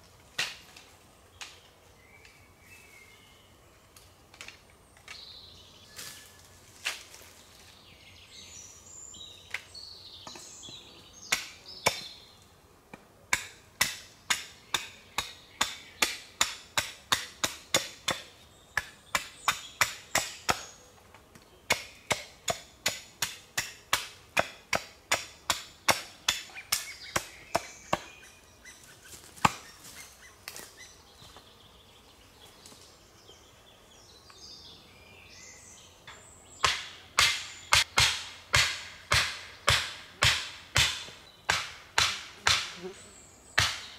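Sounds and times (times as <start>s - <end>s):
wood being chopped: 11.3s - 12.1s, 12.9s - 20.7s, 21.3s - 28.1s, 29.4s - 29.7s, 36.6s - 42.8s, 43.6s - 43.9s.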